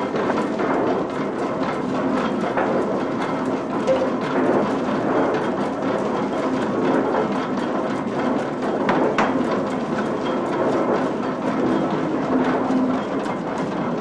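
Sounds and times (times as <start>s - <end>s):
mill machinery rumbling and clattering: 0.0s - 14.0s.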